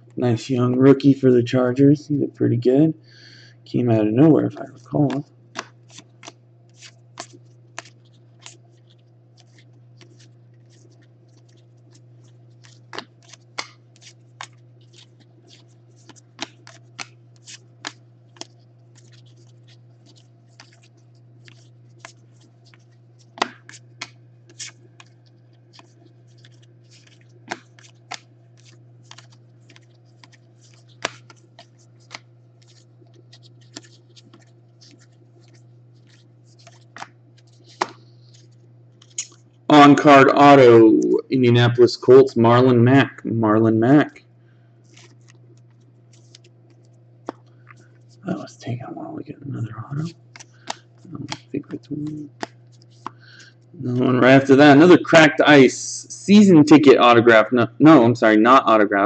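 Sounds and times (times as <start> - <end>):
low steady hum: 0.0 - 59.0
cards snapping off a pile: 5.1 - 8.6, 12.6 - 19.4, 20.0 - 25.1, 25.7 - 32.9, 33.6 - 39.4, 50.0 - 53.5.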